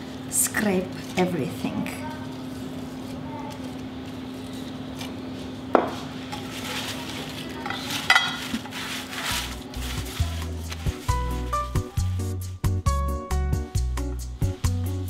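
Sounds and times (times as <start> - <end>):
bread rustling with glass clinks: 6.4 - 10.2
music: 9.1 - 15.0.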